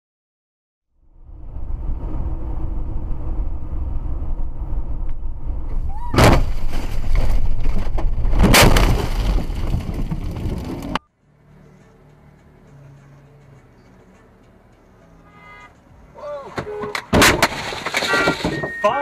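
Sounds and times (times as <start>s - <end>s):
road and engine rumble: 0.9s - 19.0s
crashing and banging: 6.0s - 11.0s, 16.6s - 18.9s
car collision impact: 6.1s - 11.0s, 16.5s - 18.8s.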